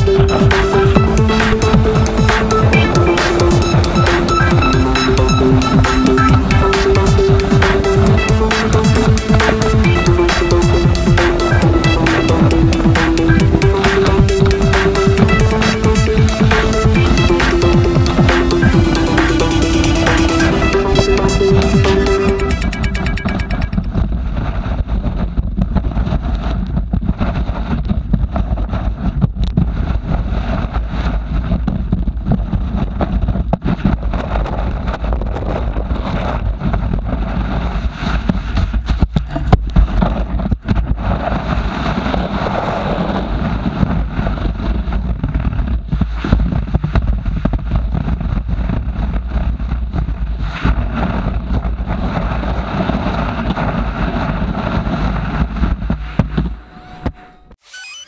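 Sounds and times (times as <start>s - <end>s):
skis scraping over packed snow: 40.8s - 56.0s.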